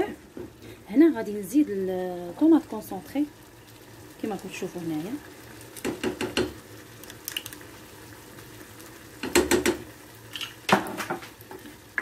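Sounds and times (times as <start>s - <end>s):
faint sauce sizzle: 0.0s - 12.0s
spoons knocking on saucepan: 5.8s - 6.6s, 9.2s - 9.9s.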